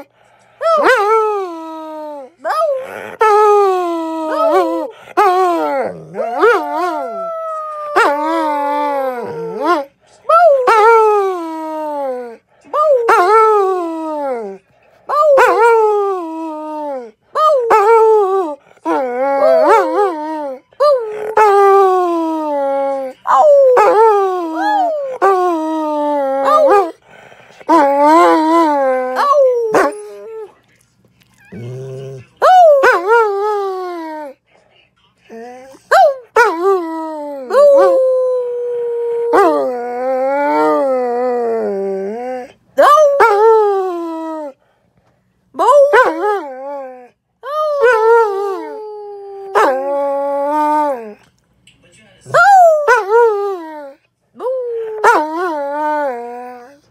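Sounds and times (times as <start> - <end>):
dog howling: 0.0 - 27.0, 27.7 - 30.5, 35.3 - 44.6, 45.6 - 51.2, 52.3 - 56.9
dog groaning: 31.3 - 32.4.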